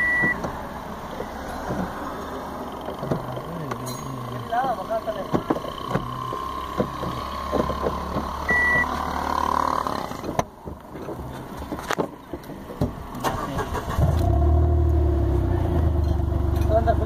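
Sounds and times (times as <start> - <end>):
short electronic beep: 8.5 - 8.9.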